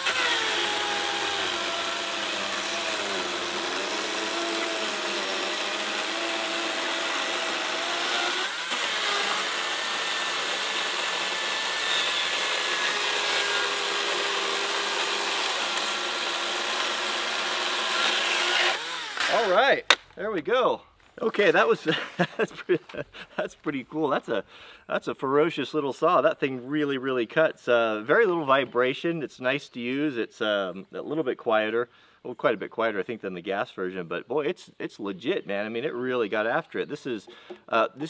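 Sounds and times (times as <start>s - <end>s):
electric chainsaw cutting log: 0.0s - 19.6s.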